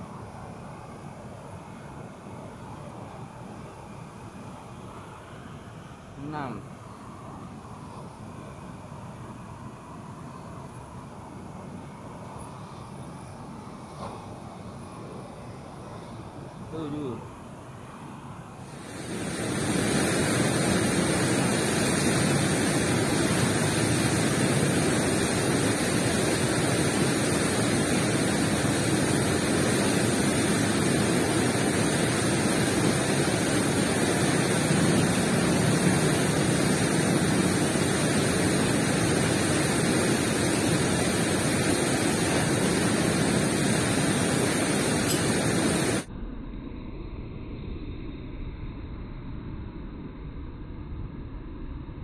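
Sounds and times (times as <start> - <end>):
water rushing through weir gates: 18.9 - 46.0.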